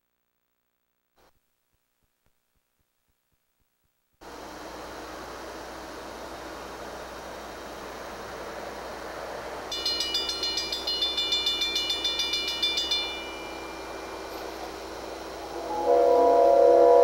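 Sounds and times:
railroad crossing bell ringing: 9.7s - 17.0s
locomotive air horn: 15.5s - 17.0s.

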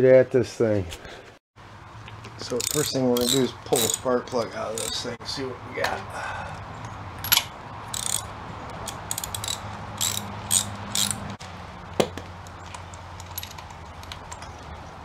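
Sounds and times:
ratchet wrench clicking: 2.4s - 5.1s, 7.2s - 11.4s.

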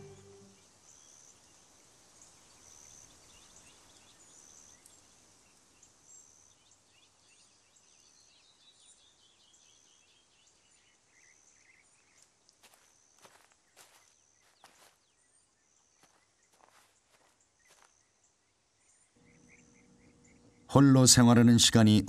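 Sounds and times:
bird notes falling in pitch: 0.0s - 0.6s.

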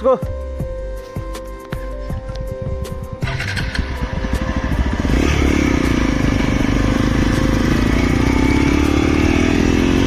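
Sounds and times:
motorcycle engine pulling away: 3.2s - 10.0s.

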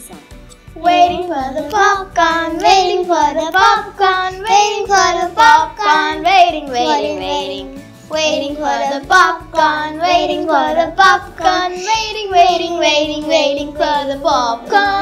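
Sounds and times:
children singing: 0.8s - 15.0s.

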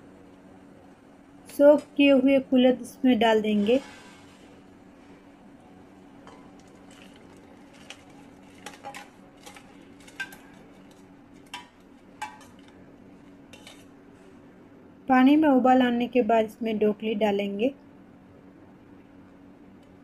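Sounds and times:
metal spoon clinking on pot: 8.6s - 10.6s, 11.5s - 12.7s.

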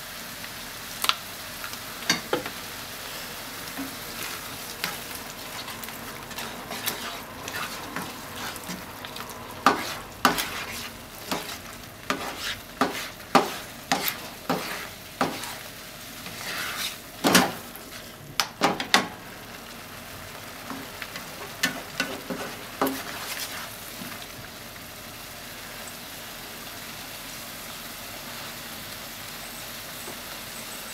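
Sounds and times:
food sizzling in frying pan: 0.0s - 30.9s
spatula scraping and knocking pan: 3.7s - 17.7s, 20.7s - 24.1s.

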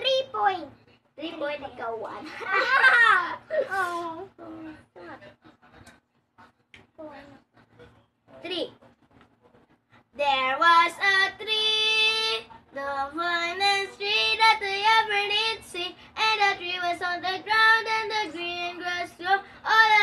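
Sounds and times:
girl singing unaccompanied: 10.2s - 20.0s.

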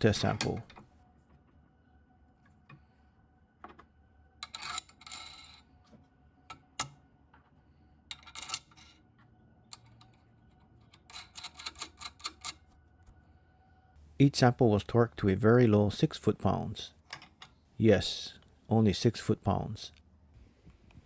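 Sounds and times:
steel parts clinking and rattling: 4.4s - 5.7s, 8.1s - 9.1s, 9.7s - 12.7s.

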